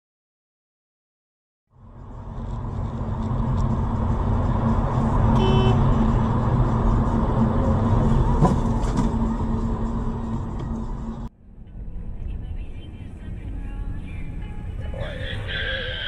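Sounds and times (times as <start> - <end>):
car driving on highway: 1.7 - 16.0
car horn honk: 5.2 - 6.5.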